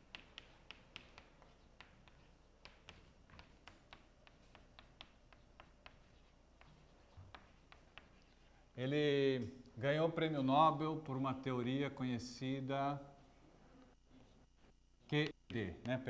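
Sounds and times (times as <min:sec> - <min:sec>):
chalk tapping on blackboard: 0:00.0 - 0:08.6, 0:15.1 - 0:16.0.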